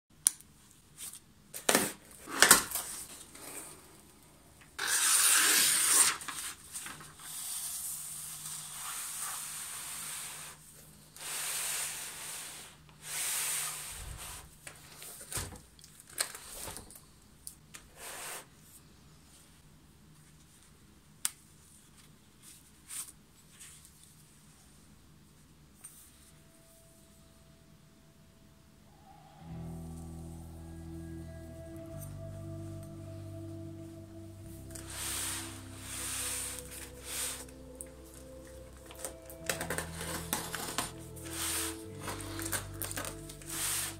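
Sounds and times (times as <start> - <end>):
packaging rustling and tearing: 4.8 - 7.3, 38.1 - 43.9.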